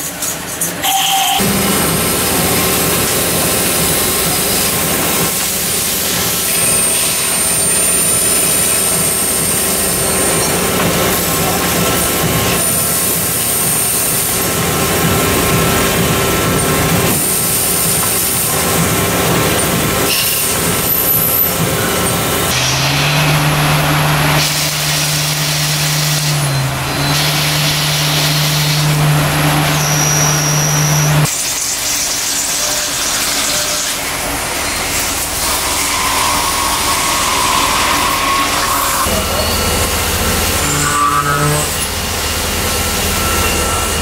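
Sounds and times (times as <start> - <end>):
metal cutting machine noise: 0.0 - 44.0.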